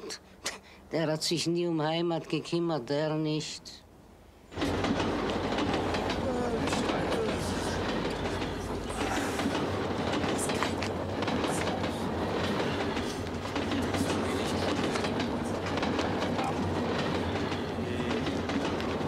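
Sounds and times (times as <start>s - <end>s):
train rumble and rattle: 4.5s - 19.0s.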